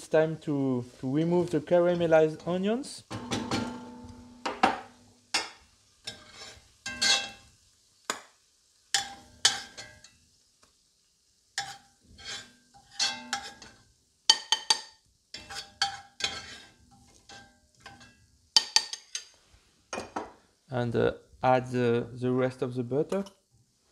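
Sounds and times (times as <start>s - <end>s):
metal spoon scraping a pot: 6.0s - 7.4s, 11.6s - 13.8s, 14.4s - 19.4s.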